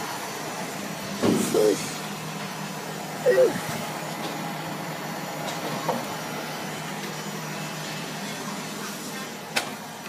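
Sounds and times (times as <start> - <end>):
machine humming and hissing: 0.0 - 10.0.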